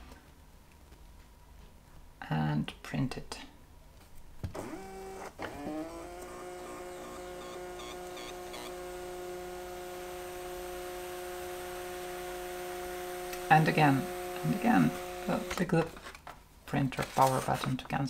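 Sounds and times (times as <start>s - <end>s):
thermal printer motor humming: 4.6s - 15.7s.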